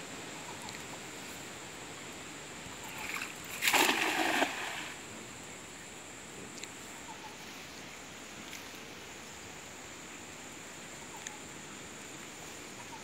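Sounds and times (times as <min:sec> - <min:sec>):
faint ticks: 0:00.5 - 0:00.9, 0:06.5 - 0:06.8, 0:11.1 - 0:11.4.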